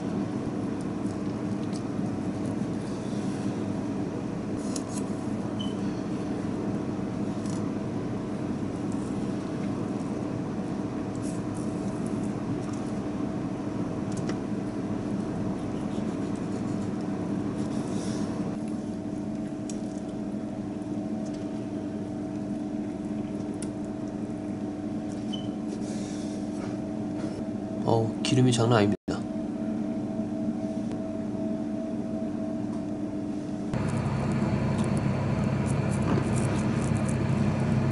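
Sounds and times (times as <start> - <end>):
kitchen equipment humming: 0.0 - 37.9.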